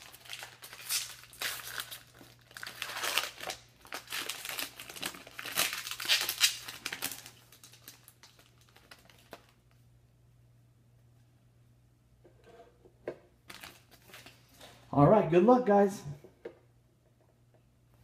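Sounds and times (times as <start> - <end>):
foil wrapper crinkling: 0.0 - 9.7.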